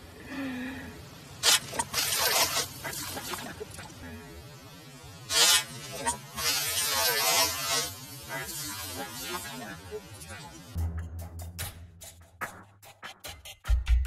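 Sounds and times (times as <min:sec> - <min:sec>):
hose spraying water: 0:01.4 - 0:04.0, 0:05.3 - 0:10.4.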